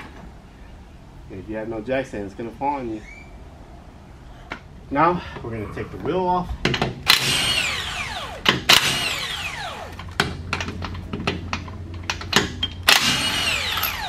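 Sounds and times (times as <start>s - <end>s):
impact wrench bursts: 7.0s - 10.4s, 12.2s - 14.0s.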